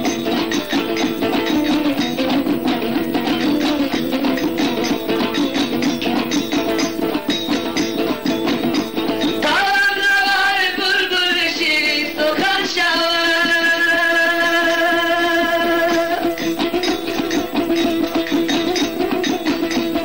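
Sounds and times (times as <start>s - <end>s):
plucked strings: 0.0s - 20.0s
man singing wavering notes: 9.4s - 16.7s.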